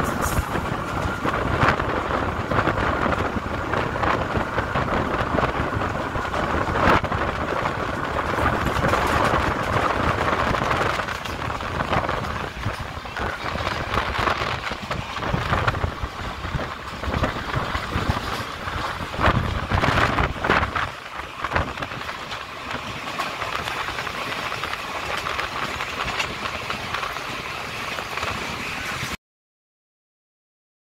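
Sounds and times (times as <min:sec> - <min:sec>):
train rumbling along track: 0:00.0 - 0:29.2
wheels clattering over rail joints: 0:00.0 - 0:29.2.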